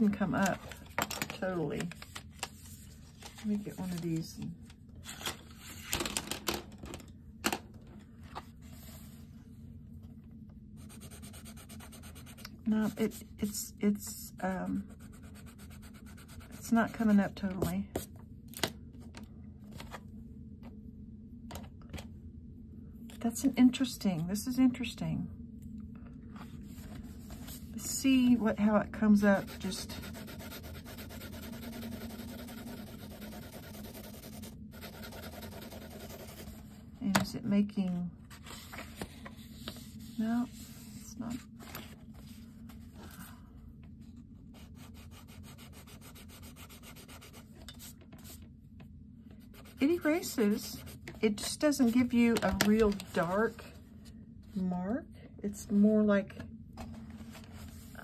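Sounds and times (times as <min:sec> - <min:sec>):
paper rustling: 0:00.4 - 0:04.2
pencil scribbling on paper: 0:10.8 - 0:13.2, 0:14.9 - 0:17.0, 0:29.2 - 0:36.6, 0:44.6 - 0:47.4.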